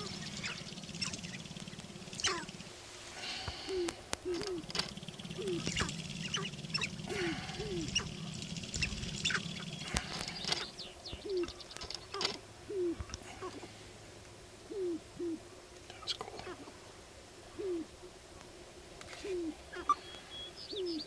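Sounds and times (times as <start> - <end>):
high downward-sweeping bird calls: 0.0 - 13.2, 19.2 - 21.0
low falling grouse coos: 0.0 - 13.8, 14.6 - 16.8, 17.4 - 18.1, 19.1 - 21.0.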